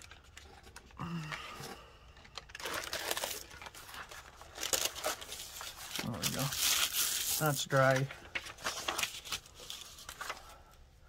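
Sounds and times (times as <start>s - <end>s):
paper pages rustling: 2.3s - 10.8s.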